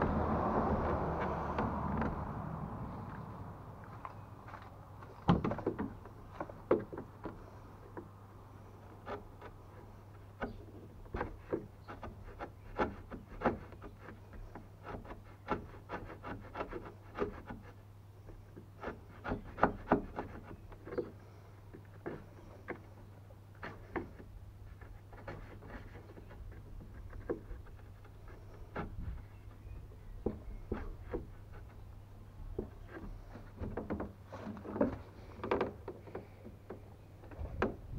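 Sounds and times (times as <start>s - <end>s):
chisel cutting wood: 0.0s - 2.4s, 8.9s - 21.2s, 23.6s - 31.8s.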